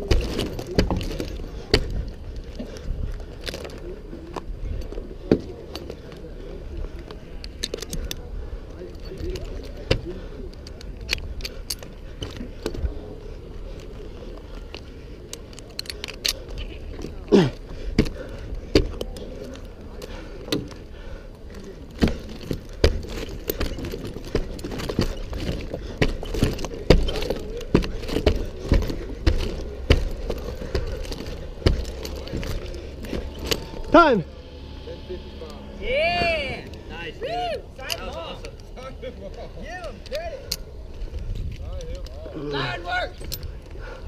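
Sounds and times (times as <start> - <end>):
climbing spikes thudding into wood: 0.0 - 2.2, 21.8 - 34.1
steady low rumble: 0.0 - 42.4.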